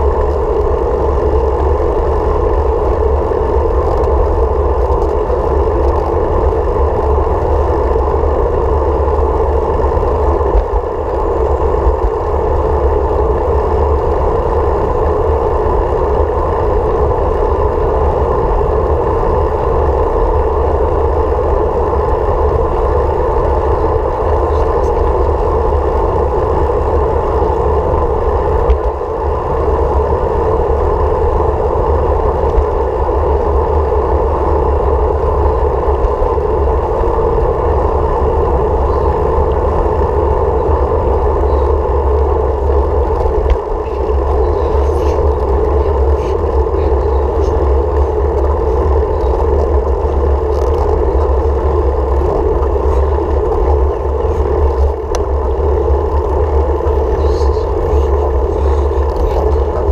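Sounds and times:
road rumble: 0.0 - 59.9
steady wind: 0.0 - 59.9.

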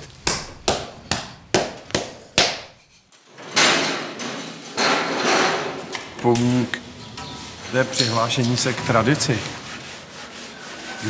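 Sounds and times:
scraping noise: 6.8 - 11.0.

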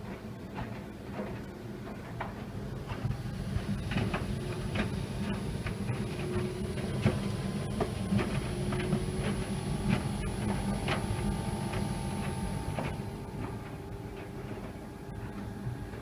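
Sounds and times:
tumble dryer humming: 0.0 - 16.0.

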